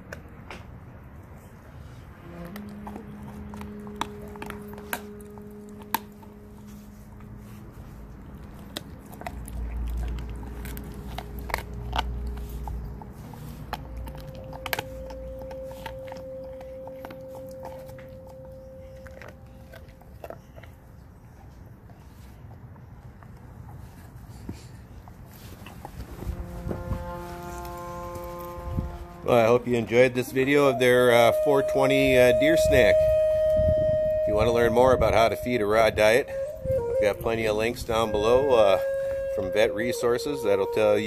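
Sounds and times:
dog chewing bone: 2.2 - 28.5.

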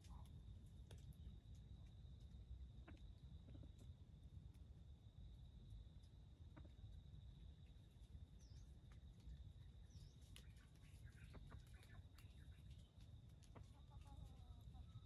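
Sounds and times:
small bird chirps: 8.3 - 15.0.

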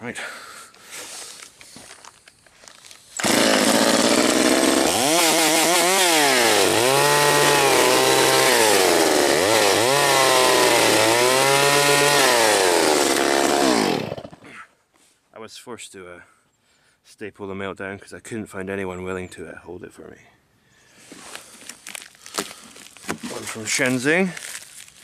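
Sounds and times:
chainsaw revving: 3.2 - 14.4.

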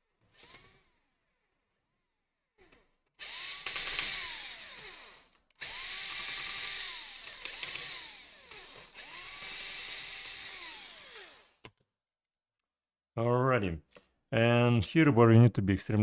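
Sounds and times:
electric screwdriver whirring: 3.2 - 11.6.

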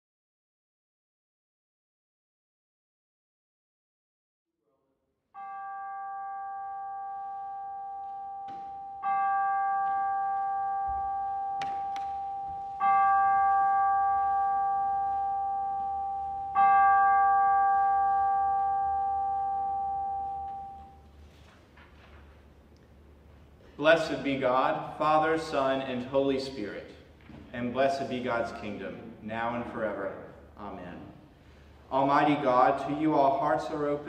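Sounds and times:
bell ringing: 5.4 - 21.3.

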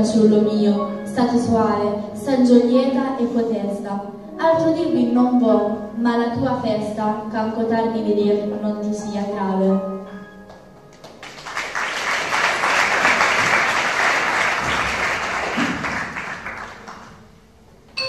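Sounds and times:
audience applauding: 11.0 - 17.3.

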